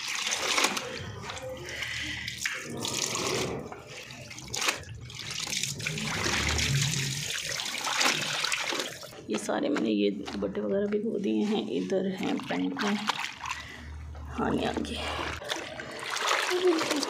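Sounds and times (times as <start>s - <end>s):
water pouring from a hose: 0.0s - 9.2s, 15.3s - 17.0s
wet clothes sloshing and splashing: 0.0s - 17.0s.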